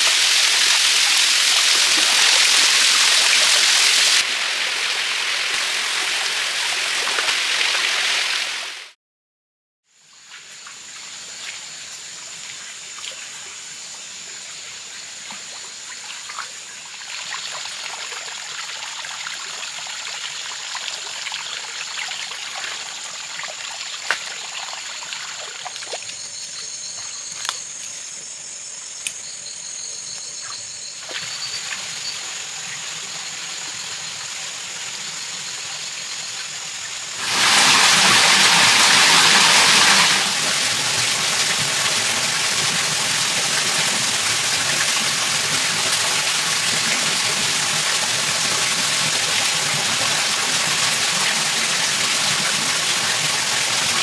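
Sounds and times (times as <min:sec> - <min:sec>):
small cascade rushing: 0:00.0 - 0:09.0, 0:31.1 - 0:54.0
stream trickling over rocks: 0:15.4 - 0:27.8, 0:36.0 - 0:54.0.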